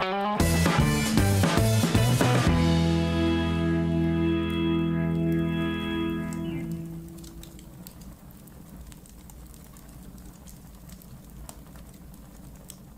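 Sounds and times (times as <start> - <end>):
outro music: 0.0 - 7.6
faint clicks and crackles: 4.4 - 12.9.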